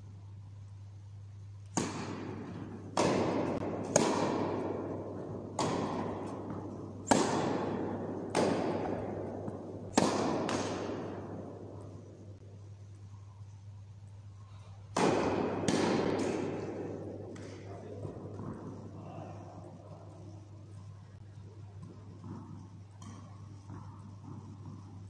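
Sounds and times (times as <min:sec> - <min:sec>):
steady low hum: 0:00.0 - 0:25.0
tennis ball hit with racquets: 0:01.6 - 0:12.4, 0:14.5 - 0:20.3, 0:21.2 - 0:25.0.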